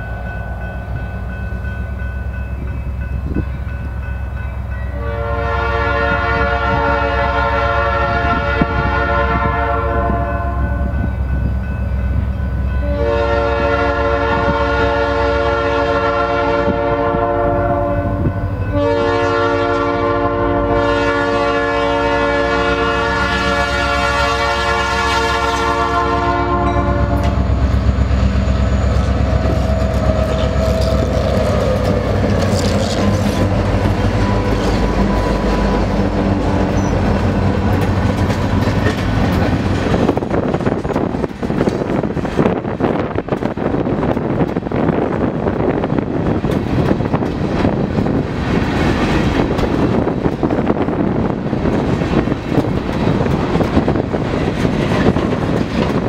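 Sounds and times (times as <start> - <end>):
train wheels on rails: 0.0 - 56.0
locomotive air horn blasts: 4.9 - 11.0, 12.8 - 27.6.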